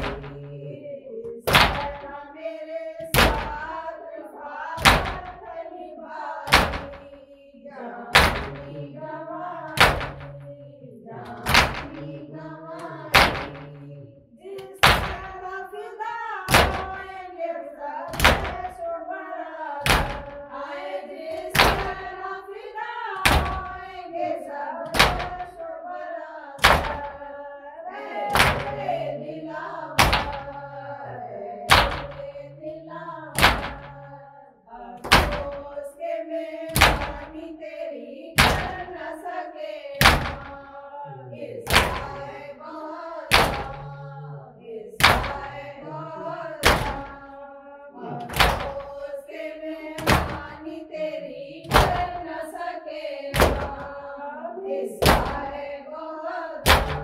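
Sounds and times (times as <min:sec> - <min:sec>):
heavy chest-beating slaps: 0:00.0 - 0:00.5, 0:01.4 - 0:02.1, 0:03.1 - 0:03.8, 0:04.8 - 0:05.4, 0:06.5 - 0:07.2, 0:08.1 - 0:08.8, 0:09.7 - 0:10.5, 0:11.2 - 0:12.2, 0:12.8 - 0:13.8, 0:14.6 - 0:15.4, 0:16.5 - 0:17.2, 0:18.1 - 0:18.8, 0:19.8 - 0:20.5, 0:21.3 - 0:22.2, 0:23.2 - 0:24.0, 0:24.9 - 0:25.6, 0:26.6 - 0:27.2, 0:28.2 - 0:29.1, 0:30.0 - 0:30.7, 0:31.7 - 0:32.4, 0:33.3 - 0:34.1, 0:35.0 - 0:35.8, 0:36.7 - 0:37.4, 0:38.4 - 0:39.1, 0:40.0 - 0:40.6, 0:41.7 - 0:42.4, 0:43.3 - 0:44.0, 0:45.0 - 0:45.7, 0:46.6 - 0:47.2, 0:48.2 - 0:49.1, 0:50.0 - 0:50.7, 0:51.7 - 0:52.4, 0:53.4 - 0:54.0, 0:55.0 - 0:55.6, 0:56.6 - 0:57.0
person chanting: 0:00.0 - 0:57.0.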